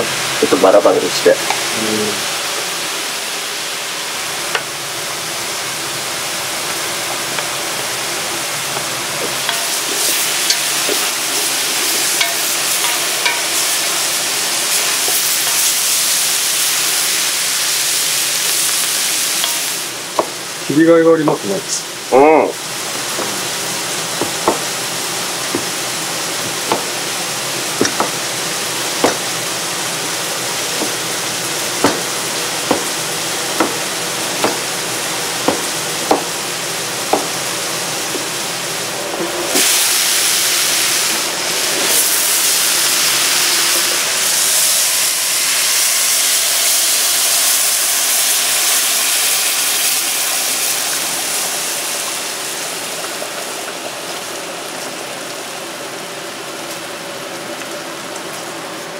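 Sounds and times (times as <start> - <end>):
food sizzling in a pan: 0.0 - 58.9
knife chopping on cutting board: 24.2 - 24.7, 26.5 - 27.0, 27.8 - 28.2, 29.0 - 29.3, 31.8 - 33.0, 33.6 - 34.7, 35.4 - 36.4, 37.1 - 37.4.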